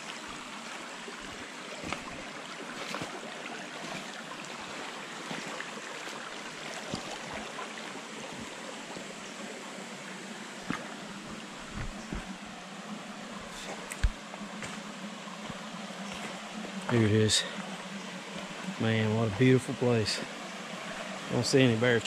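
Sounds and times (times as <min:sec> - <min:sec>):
creek water over rocks: 0:00.0 - 0:22.0
boots stepping in water: 0:01.8 - 0:03.2, 0:03.8 - 0:09.1, 0:10.6 - 0:12.4, 0:13.6 - 0:16.4.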